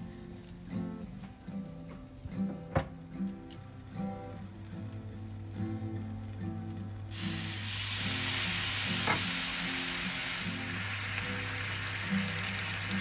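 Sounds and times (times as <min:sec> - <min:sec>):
soft acoustic guitar music: 0:00.0 - 0:13.0
sauce sizzling in a hot pan: 0:03.2 - 0:13.0.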